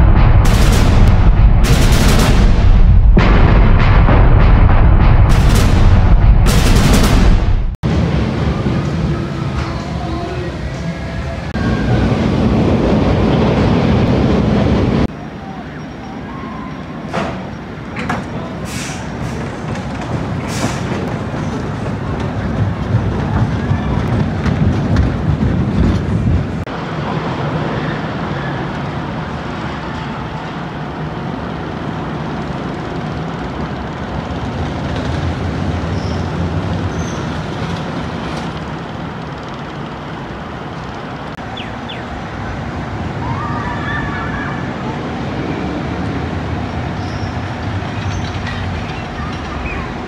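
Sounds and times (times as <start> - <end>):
low hum: 0.0 - 9.7
roller coaster rumbling on steel track: 0.0 - 50.0.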